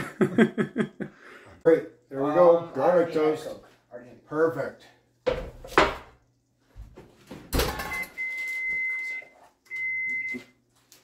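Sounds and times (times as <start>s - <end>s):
appliance electronic beeps: 7.7s - 10.6s.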